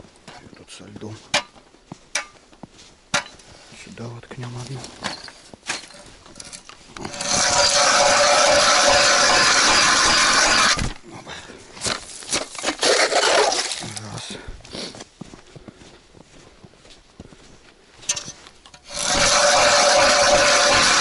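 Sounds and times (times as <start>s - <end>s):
ice auger scraping ice: 6.4s - 11.0s, 12.3s - 14.0s, 18.7s - 21.0s.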